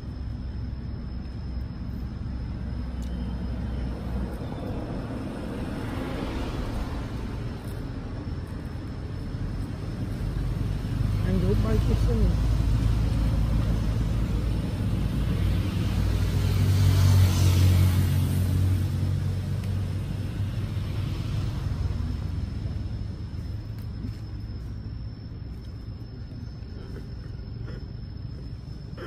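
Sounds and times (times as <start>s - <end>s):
vehicle passing by: 3.5s - 8.7s, 9.5s - 23.5s.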